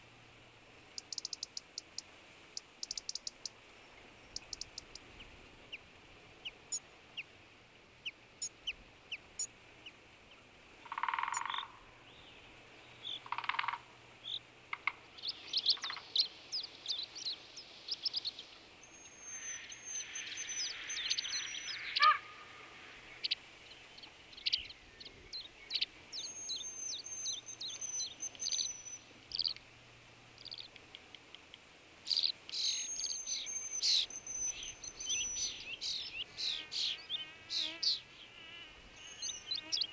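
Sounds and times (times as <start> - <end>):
birds chirping and trilling: 10.9 - 29.6, 30.4 - 30.8, 32.1 - 39.9.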